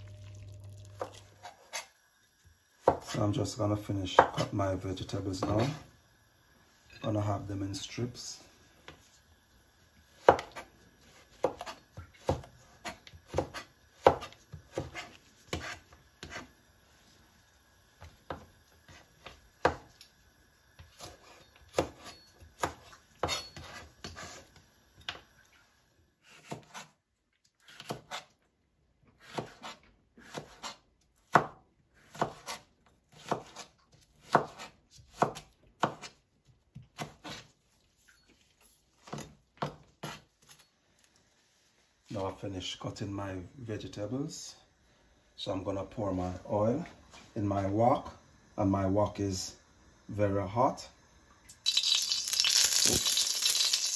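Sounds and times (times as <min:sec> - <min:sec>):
knife chopping on plastic board: 0:11.3 - 0:16.5, 0:26.3 - 0:26.9, 0:27.7 - 0:28.3, 0:29.2 - 0:37.5.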